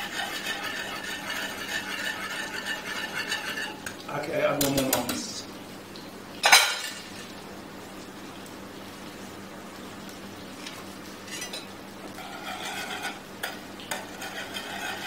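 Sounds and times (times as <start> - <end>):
whisk scraping frying pan: 0.0 - 3.9, 12.2 - 15.0.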